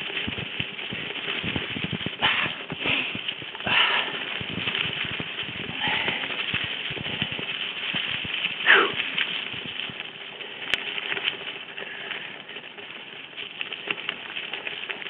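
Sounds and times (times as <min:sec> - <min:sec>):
mountain bike rattling on trail: 0:00.0 - 0:15.0.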